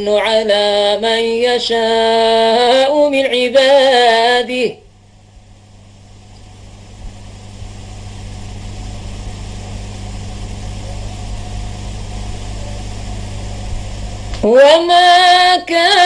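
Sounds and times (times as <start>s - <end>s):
low electrical hum: 0.0s - 16.0s
steady hiss: 4.9s - 16.0s.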